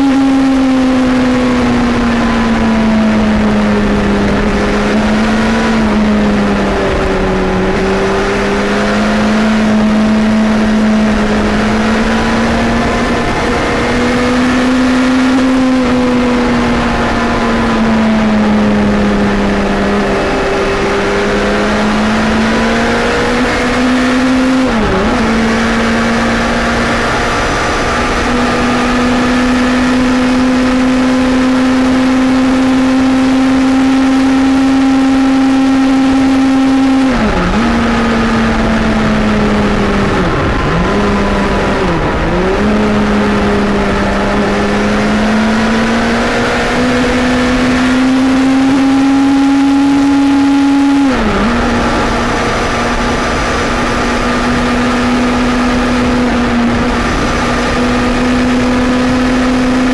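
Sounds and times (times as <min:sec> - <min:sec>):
motorcycle engine cruising: 0:00.0 - 0:59.9
wind rushing over microphone: 0:00.0 - 0:59.9.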